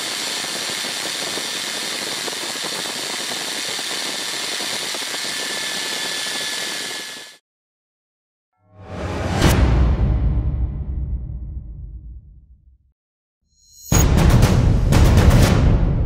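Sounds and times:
drill spinning buffing wheel: 0:00.0 - 0:07.4
knife blade buffed on wheel: 0:00.0 - 0:07.4
music: 0:08.6 - 0:12.9, 0:13.5 - 0:16.0.

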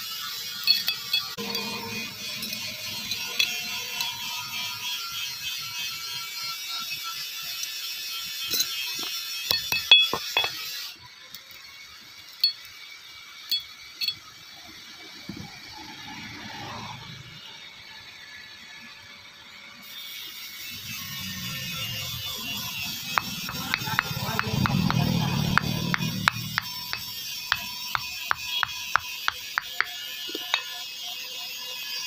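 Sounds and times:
hammer tapping on metal chain: 0:09.5 - 0:10.6, 0:23.1 - 0:30.7
bicycle chain rattling: 0:20.0 - 0:32.0.

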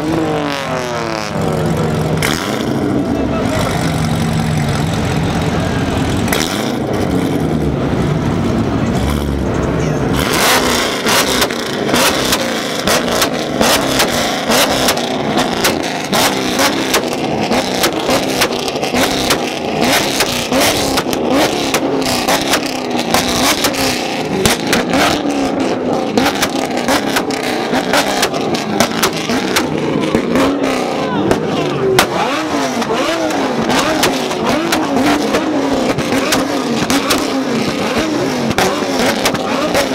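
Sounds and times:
sports car engines revving: 0:00.0 - 0:39.9
exhaust cracks and pops: 0:11.3 - 0:25.3, 0:26.2 - 0:30.4, 0:32.8 - 0:39.9.

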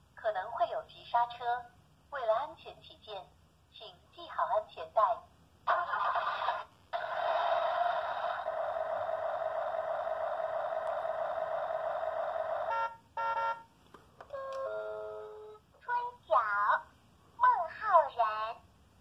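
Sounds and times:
long steady electronic tone: 0:07.4 - 0:13.7.

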